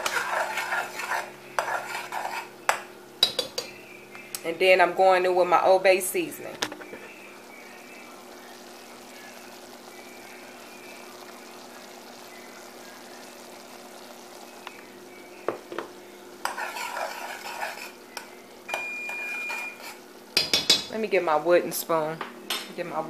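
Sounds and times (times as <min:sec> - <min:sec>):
metal utensil scraping pot: 0:00.0 - 0:02.5, 0:16.4 - 0:18.0, 0:19.0 - 0:20.5
butter sizzling in saucepan: 0:00.0 - 0:03.7, 0:05.3 - 0:21.9.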